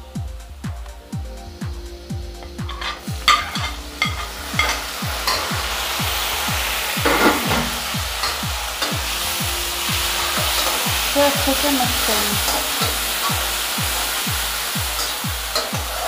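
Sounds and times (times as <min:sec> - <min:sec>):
background music with steady beat: 0:00.0 - 0:16.0
tomato sizzling in hot oil: 0:01.4 - 0:16.0.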